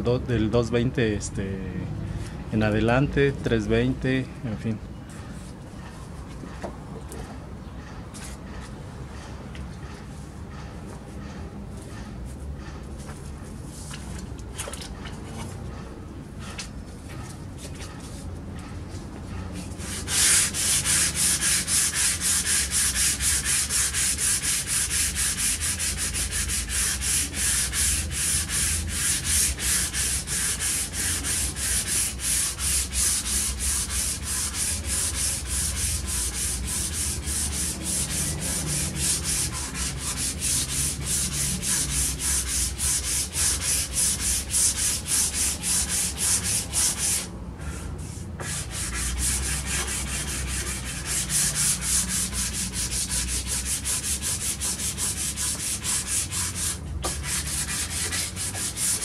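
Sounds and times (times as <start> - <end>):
sandpaper scraping strokes: 19.3 - 59.0.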